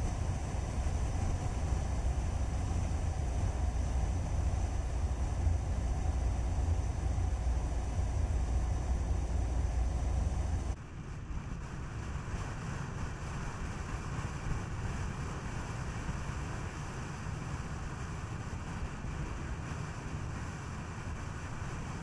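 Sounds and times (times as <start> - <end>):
deep rumble: 0.0 - 10.8
road and wind noise: 0.0 - 22.0.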